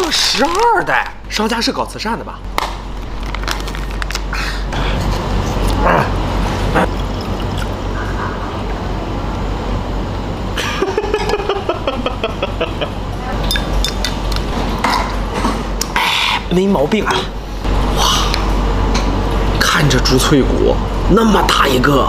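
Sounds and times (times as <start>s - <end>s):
plastic pouch crinkling: 0.0s - 1.1s, 2.9s - 4.3s.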